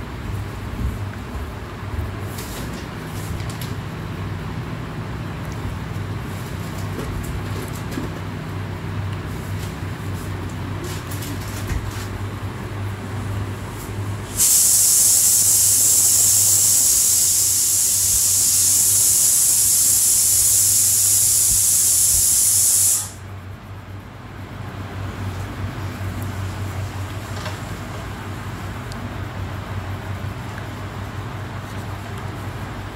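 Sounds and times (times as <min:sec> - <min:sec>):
loud high-pitched hiss: 0:14.2 - 0:23.3.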